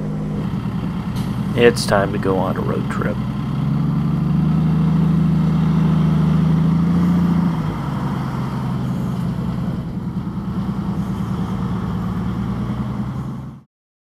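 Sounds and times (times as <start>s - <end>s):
motorcycle engine running: 0.0s - 8.2s.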